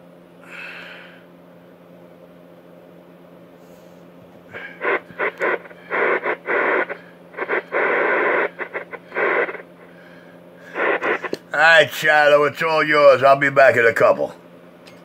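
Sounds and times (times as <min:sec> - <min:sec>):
faint hum: 0:00.0 - 0:15.0
radio static bursts: 0:04.5 - 0:14.1.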